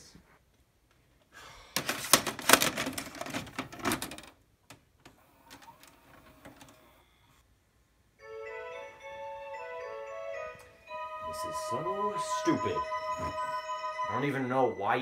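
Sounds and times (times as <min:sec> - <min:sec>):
tape player mechanism clattering: 0:01.8 - 0:04.4
bell-like music: 0:08.2 - 0:15.0.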